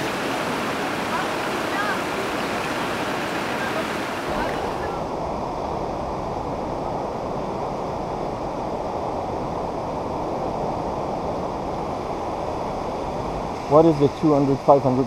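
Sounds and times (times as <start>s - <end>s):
floodwater rushing: 0.0s - 5.2s.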